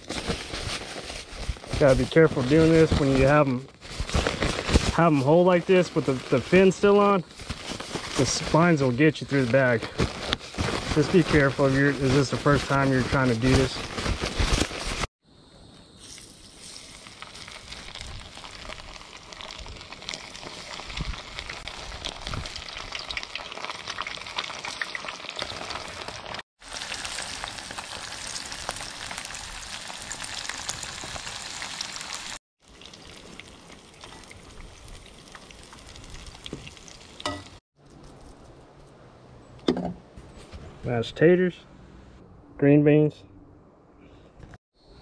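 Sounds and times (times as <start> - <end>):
fish frying in hot oil: 16.2 - 37.6.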